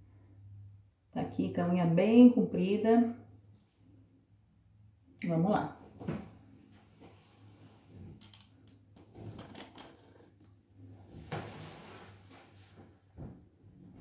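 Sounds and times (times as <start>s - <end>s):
faint knocks and rustling: 9.0s - 14.0s.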